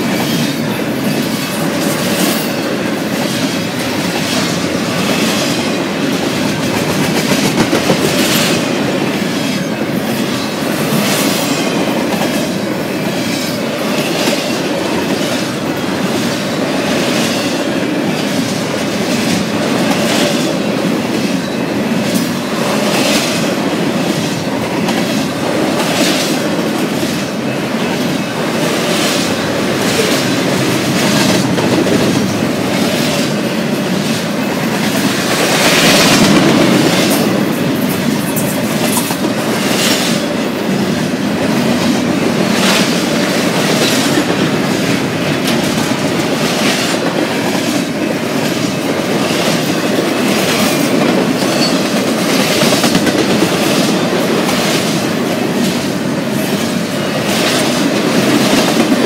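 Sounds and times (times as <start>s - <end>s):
train car trucks clattering: 0.0s - 59.0s
train wheels rumbling on rail: 0.0s - 59.0s.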